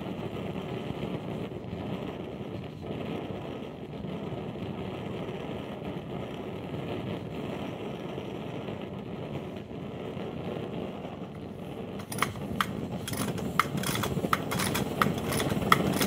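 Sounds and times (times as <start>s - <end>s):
blowtorch flame rushing: 0.0s - 16.0s.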